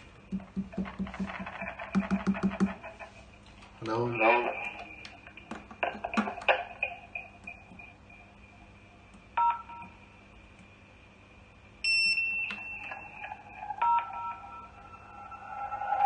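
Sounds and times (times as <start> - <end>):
faint steady high tone: 11.8 - 16.0
high single beep: 11.9 - 13.0.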